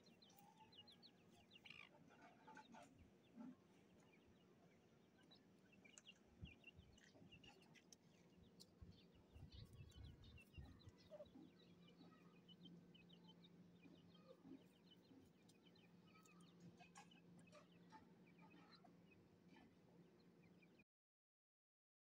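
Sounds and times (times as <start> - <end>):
bird chicks peeping: 0.0 - 20.8.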